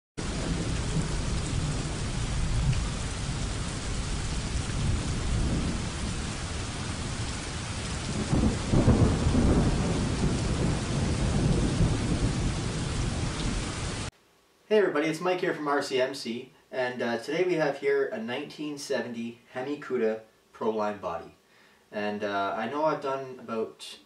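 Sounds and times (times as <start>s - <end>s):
low rumbling thunder: 0.2s - 14.1s
steady rain: 0.2s - 14.2s.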